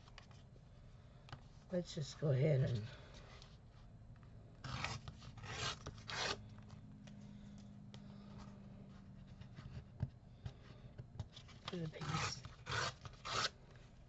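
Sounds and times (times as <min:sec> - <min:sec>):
paper scraping against ruler: 0:04.6 - 0:06.4, 0:11.7 - 0:13.5.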